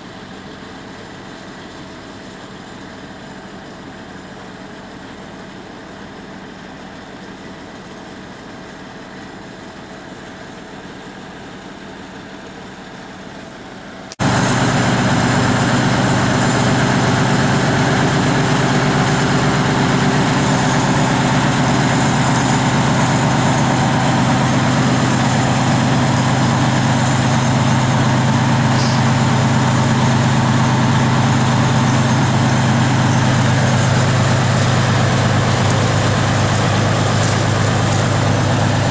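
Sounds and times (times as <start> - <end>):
diesel engine idling: 0.0 - 38.9.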